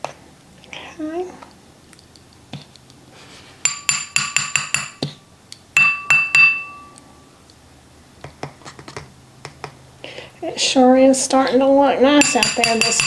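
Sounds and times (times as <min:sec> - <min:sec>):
spoon clinking on glass bowl: 0:03.7 - 0:05.0, 0:05.8 - 0:07.0, 0:12.2 - 0:13.0.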